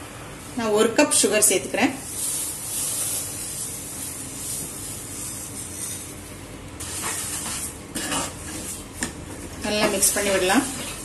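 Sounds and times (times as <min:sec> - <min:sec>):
liquid boiling and bubbling: 0:02.0 - 0:11.0
spatula scraping pan: 0:06.8 - 0:11.0.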